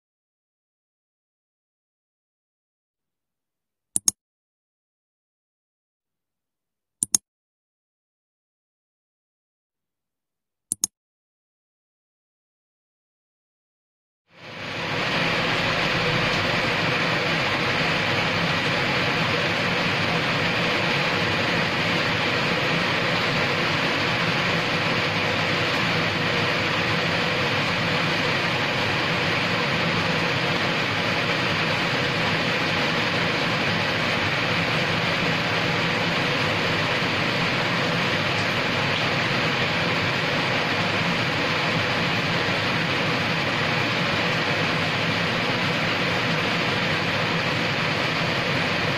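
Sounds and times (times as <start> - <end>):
steady rain on pavement and roofs: 14.4 - 48.9.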